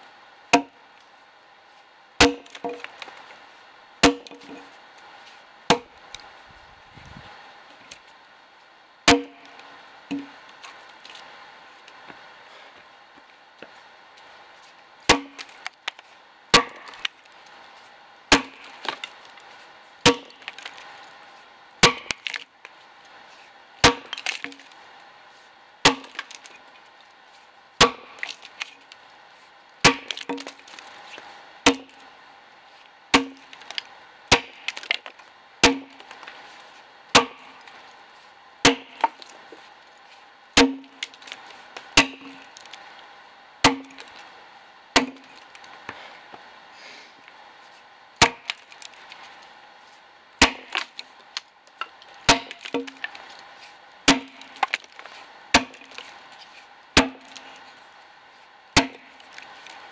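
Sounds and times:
axe chopping log: 0.5s - 0.8s, 2.2s - 3.0s, 4.0s - 4.6s, 5.7s - 6.0s, 9.1s - 10.4s, 15.1s - 17.2s, 18.3s - 19.2s, 20.0s - 20.8s, 21.8s - 22.4s, 23.8s - 24.7s, 25.8s - 26.6s, 27.8s - 28.7s, 29.8s - 30.8s, 31.6s - 32.0s, 33.1s - 36.4s, 37.2s - 37.7s, 38.6s - 39.5s, 40.6s - 42.8s, 43.6s - 44.2s, 45.0s - 46.0s, 48.2s - 49.0s, 50.4s - 51.1s, 52.3s - 53.2s, 54.1s - 56.1s, 57.0s - 57.6s, 58.8s - 59.9s.

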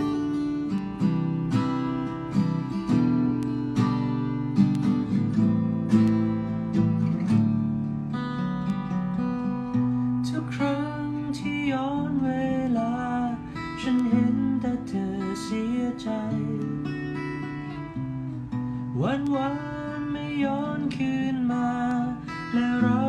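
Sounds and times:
strummed acoustic guitar: 0.0s - 23.0s
man singing: 10.2s - 17.2s, 18.9s - 23.0s.

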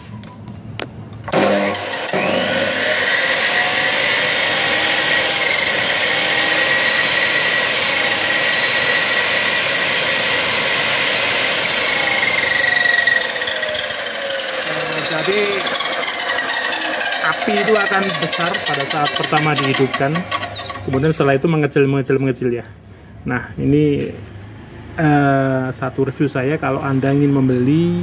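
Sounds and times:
saw motor whining: 1.3s - 21.4s.

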